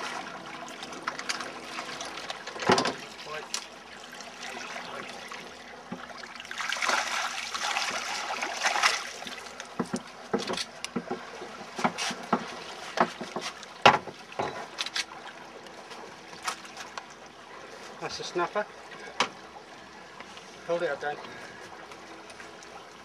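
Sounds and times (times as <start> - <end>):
water splashing: 0.0 - 23.0
sharp knocks and thumps: 9.8 - 14.6.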